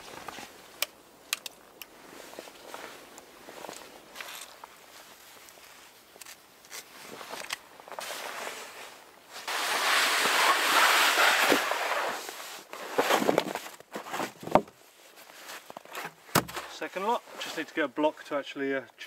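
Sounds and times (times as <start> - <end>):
firewood logs clattering: 13.1 - 14.8, 15.7 - 16.9.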